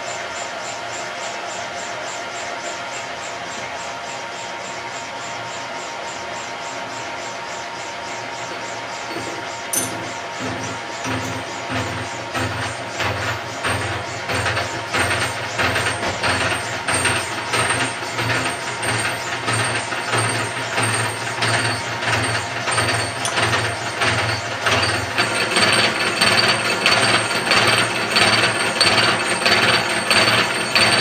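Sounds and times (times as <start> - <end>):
milling machine motor drone: 0.0 - 31.0
cutter pulsing through metal: 6.9 - 31.0.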